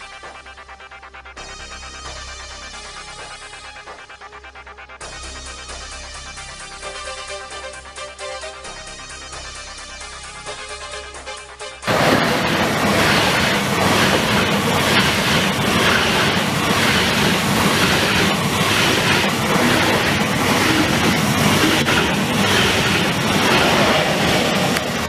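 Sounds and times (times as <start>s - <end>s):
electronic music: 1.1s - 25.0s
train running on rails: 10.3s - 25.0s.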